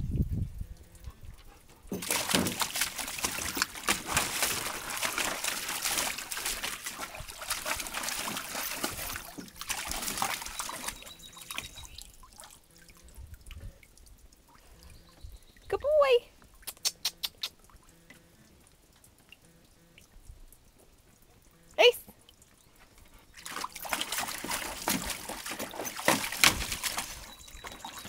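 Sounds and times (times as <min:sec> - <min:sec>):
dog splashing in water: 0:01.9 - 0:13.0, 0:23.3 - 0:28.0.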